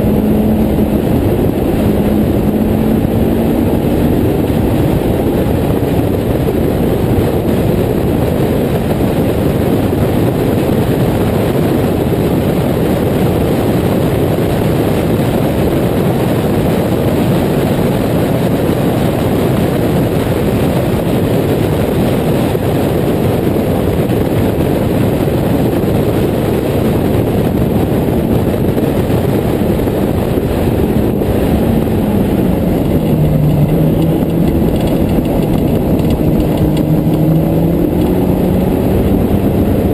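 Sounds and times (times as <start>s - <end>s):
car engine running hard: 0.0s - 39.9s
wind rush: 0.0s - 39.9s.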